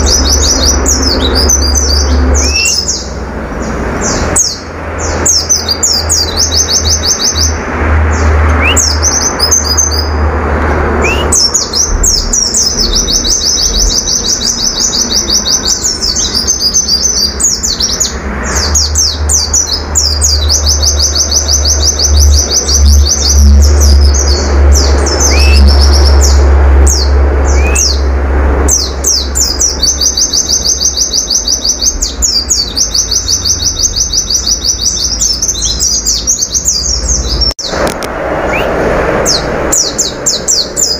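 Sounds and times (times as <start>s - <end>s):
bird chirps: 0.0s - 10.2s, 11.0s - 37.9s
bird singing: 0.0s - 10.3s, 10.9s - 40.9s
low rumble: 10.1s - 16.5s.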